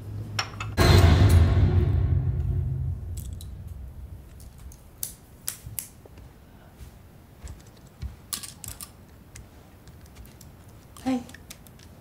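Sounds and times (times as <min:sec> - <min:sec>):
low rumble: 0:00.8 - 0:05.4.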